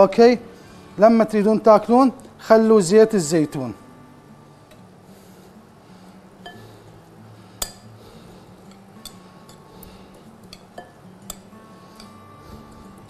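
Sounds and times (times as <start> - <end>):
utensil clinking against glass bowl: 6.4 - 6.6, 7.6 - 7.9, 10.4 - 12.2.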